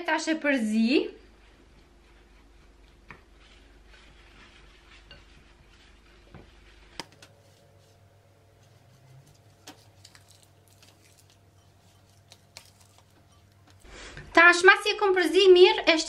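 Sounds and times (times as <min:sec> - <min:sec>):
spoon scraping glass bowl: 0:04.4 - 0:06.0, 0:08.6 - 0:13.8.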